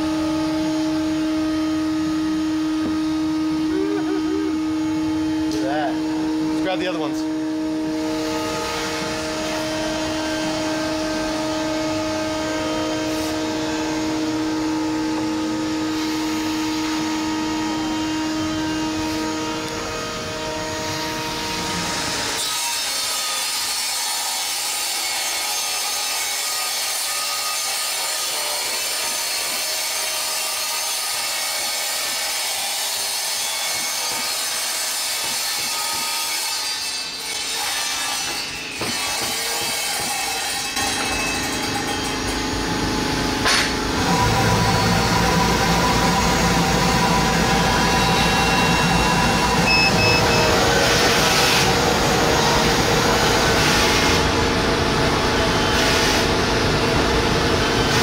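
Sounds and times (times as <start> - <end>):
machine hum with held tones: 0.0 - 22.4, 40.8 - 58.0
panel saw cutting acrylic: 7.7 - 54.7.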